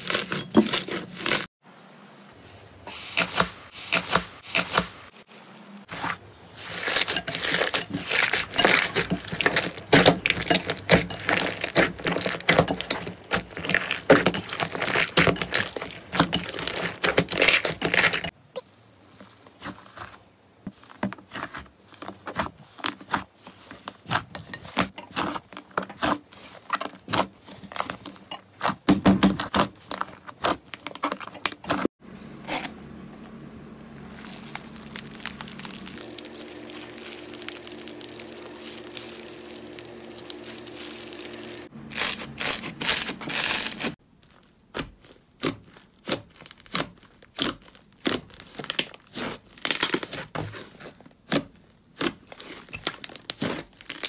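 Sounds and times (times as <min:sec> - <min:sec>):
crackling hiss of beaded slime: 0:33.8 - 0:44.0.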